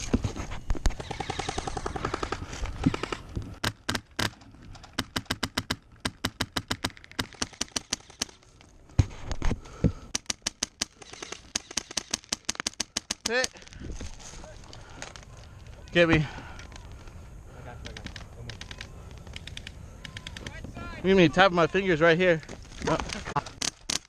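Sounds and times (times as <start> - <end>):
airsoft rifle shots: 5.0 - 8.4, 10.1 - 13.5.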